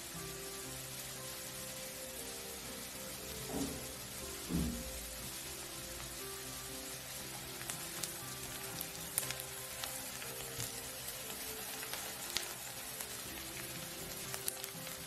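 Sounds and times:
onions sizzling in hot oil: 0:00.0 - 0:15.0
spatula stirring crackles: 0:00.0 - 0:15.0.

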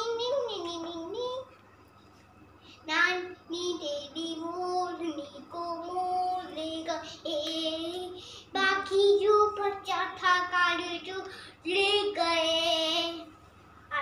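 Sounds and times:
boy singing: 0:02.8 - 0:13.3.

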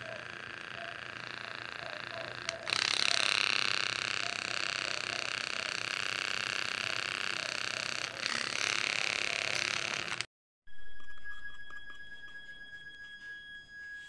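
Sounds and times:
milk frother motor whining: 0:00.0 - 0:10.3.

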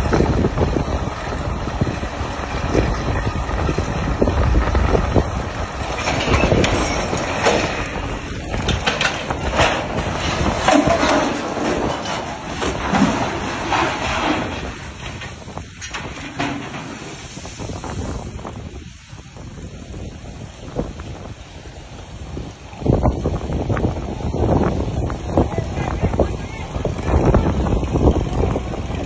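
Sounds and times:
creaking banging and crashing: 0:00.0 - 0:18.9
low rumble: 0:00.0 - 0:29.0.

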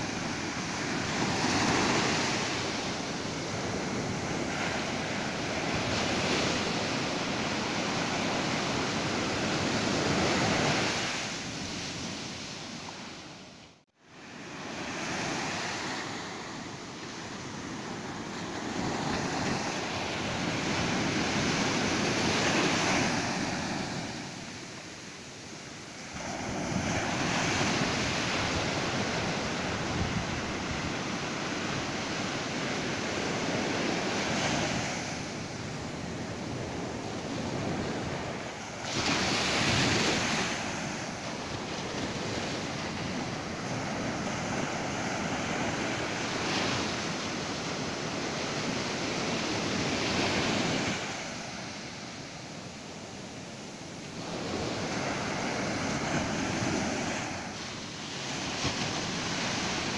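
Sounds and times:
ocean surf breaking: 0:00.0 - 0:13.4, 0:14.2 - 0:59.9.

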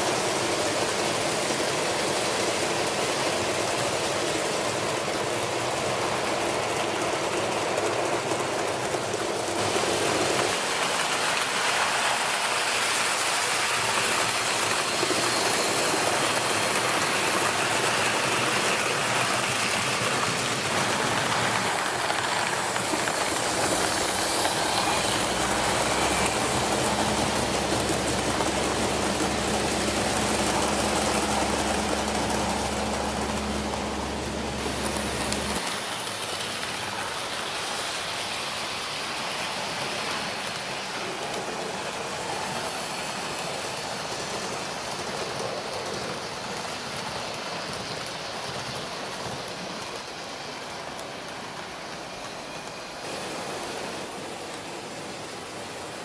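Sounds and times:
train rolling on rails: 0:00.0 - 0:56.0.

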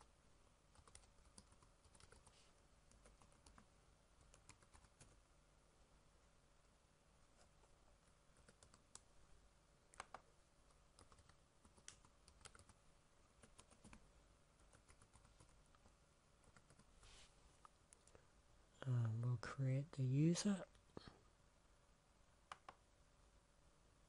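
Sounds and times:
keyboard typing clicks: 0:00.8 - 0:02.3, 0:08.4 - 0:09.1, 0:09.9 - 0:10.3, 0:11.0 - 0:12.8, 0:22.5 - 0:22.8.

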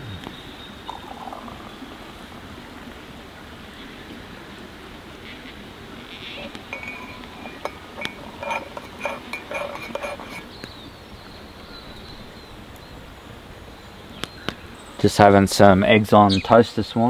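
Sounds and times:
quiet outdoor background: 0:00.0 - 0:17.0
water pouring into mugs: 0:00.8 - 0:02.5, 0:06.4 - 0:10.4
kettle and mug clinking: 0:00.9 - 0:01.7, 0:06.4 - 0:10.5.

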